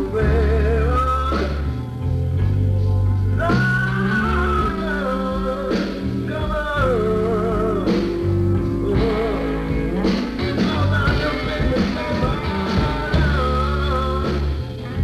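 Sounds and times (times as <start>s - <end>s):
rock band playing: 0.0s - 15.0s.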